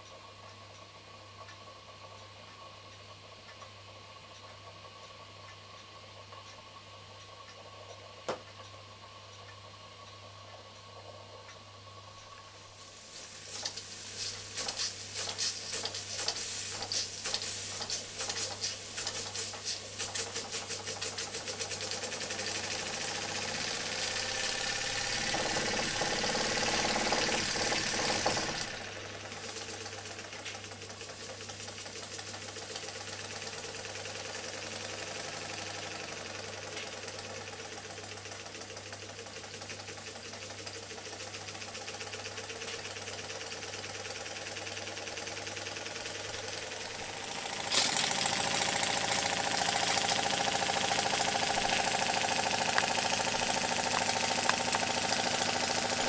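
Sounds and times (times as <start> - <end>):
model steam engine chuffing: 13.5 - 56.0.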